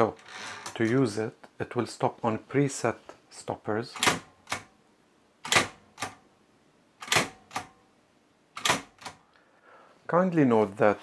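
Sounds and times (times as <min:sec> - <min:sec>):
typewriter carriage clacks: 0:07.0 - 0:07.8, 0:08.6 - 0:09.2.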